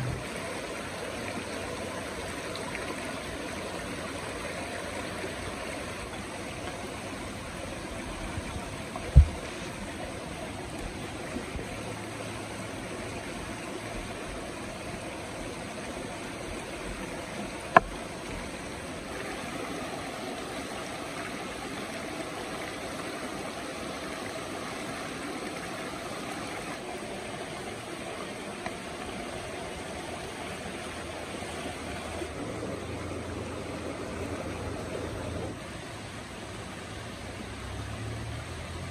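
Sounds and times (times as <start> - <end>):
river flowing over rocks: 0.0 - 38.9.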